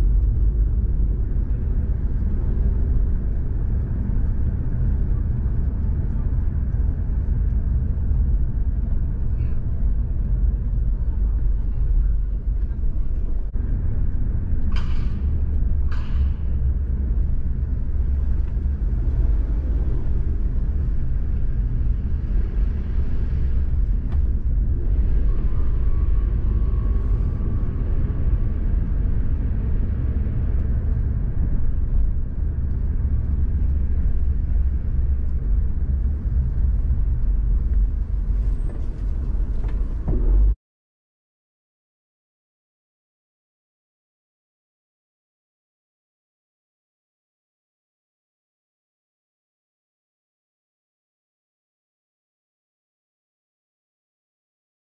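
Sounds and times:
car interior road rumble: 0.0 - 40.6.

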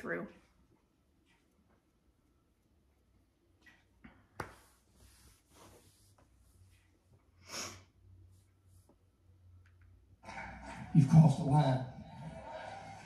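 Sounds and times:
person sniffing: 7.4 - 8.0.

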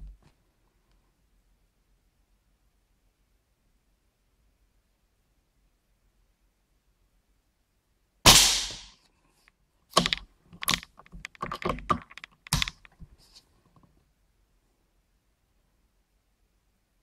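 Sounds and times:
air rifle shot: 8.3 - 8.9.

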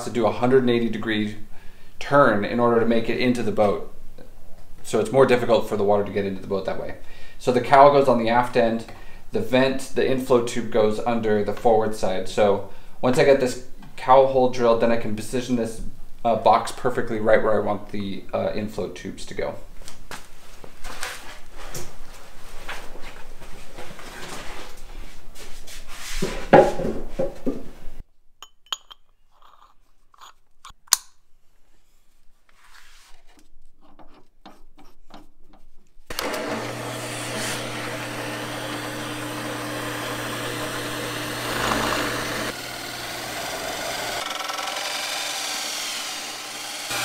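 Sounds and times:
knocks of tools and wood: 26.5 - 27.7
power drill running: 36.1 - 47.0.

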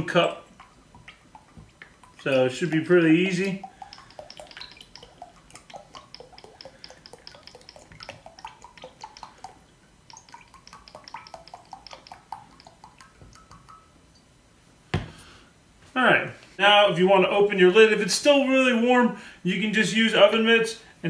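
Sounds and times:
oil dripping into glass cup: 0.1 - 14.3.

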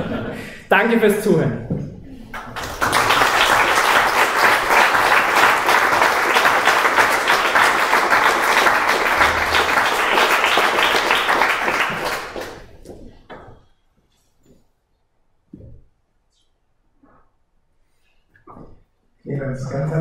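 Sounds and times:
audience applauding: 2.3 - 12.9.

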